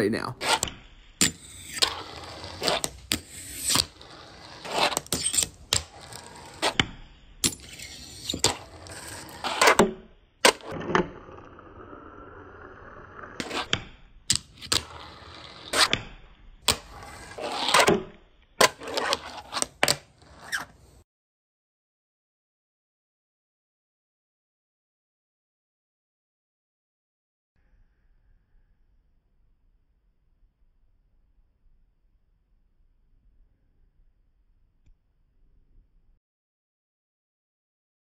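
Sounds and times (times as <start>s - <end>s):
tiny wheels rolling and scraping: 7.6s - 9.8s, 16.7s - 17.9s.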